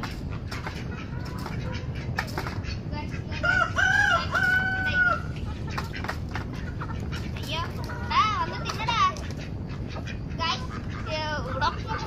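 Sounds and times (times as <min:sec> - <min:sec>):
rooster crowing: 0:03.4 - 0:05.3.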